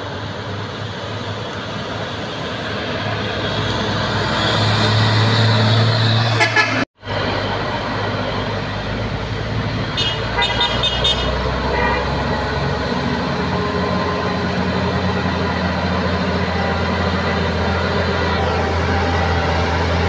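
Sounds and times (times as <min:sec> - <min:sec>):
truck diesel engine running: 0:00.0 - 0:20.0
truck horn toots: 0:06.2 - 0:06.8, 0:09.9 - 0:12.6.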